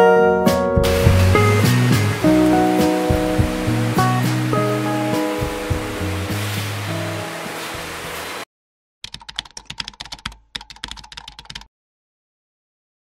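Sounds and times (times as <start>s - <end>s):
background music: 0.0s - 8.0s
rapid keyboard key clicks: 9.0s - 11.7s.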